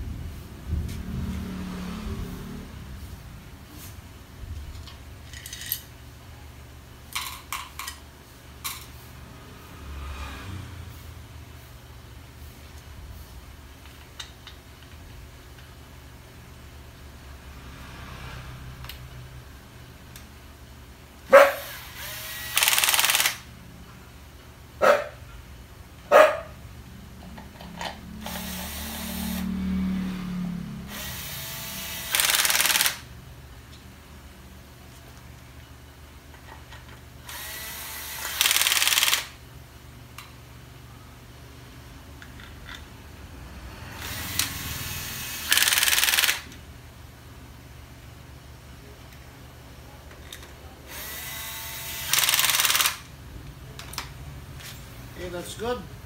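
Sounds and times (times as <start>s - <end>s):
steady low hum: 0.0s - 32.2s
cordless drill whirring: 21.6s - 23.4s, 28.2s - 29.5s, 30.9s - 33.0s, 37.3s - 39.4s, 44.0s - 46.5s, 50.9s - 53.1s.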